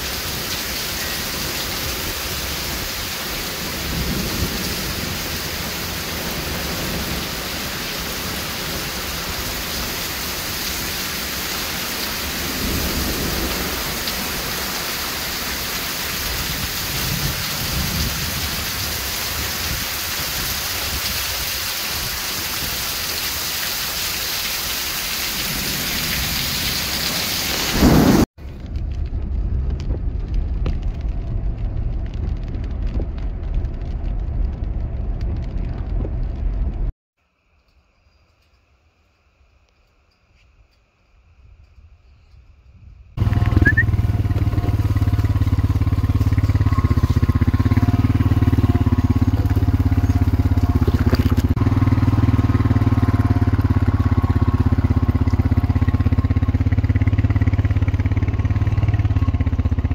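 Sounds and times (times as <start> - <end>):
thunder rumbling: 0.0 - 21.3, 25.3 - 36.9, 43.2 - 59.9
car driving on wet road: 0.0 - 36.9, 43.2 - 59.9
heavy rain pouring: 0.0 - 36.9, 43.2 - 59.9
loud thunderclap: 27.6 - 36.9.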